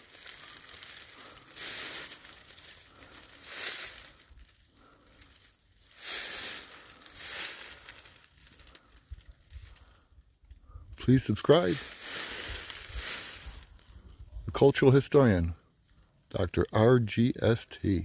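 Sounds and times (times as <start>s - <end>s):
footsteps crunching dry leaves: 0.0s - 10.0s, 11.2s - 14.0s.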